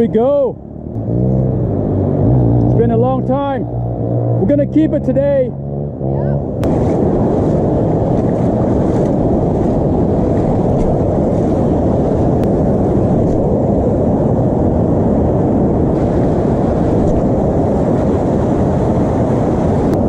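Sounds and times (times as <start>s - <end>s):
wind buffeting microphone: 0.0s - 20.0s
ocean surf washing in: 6.6s - 20.0s.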